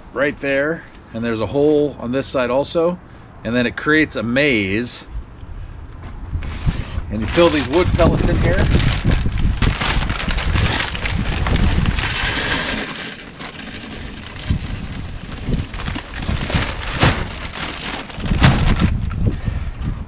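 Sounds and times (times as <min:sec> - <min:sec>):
wood pellets rattling into metal tray: 0:10.0 - 0:18.2.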